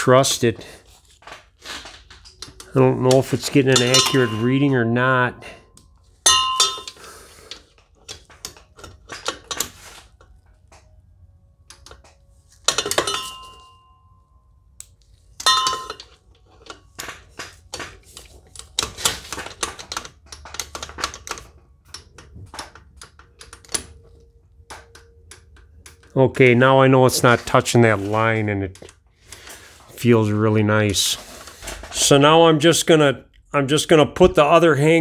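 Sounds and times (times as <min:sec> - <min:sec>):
ringing metallic clinks: 0:03.8 - 0:04.6, 0:06.3 - 0:07.0, 0:15.4 - 0:16.2.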